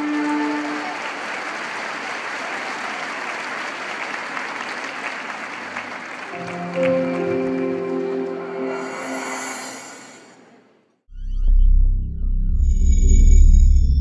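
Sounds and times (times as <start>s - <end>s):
audience applauding: 0.0s - 9.7s
held musical notes: 6.3s - 9.4s
music with sustained tones: 6.3s - 10.1s.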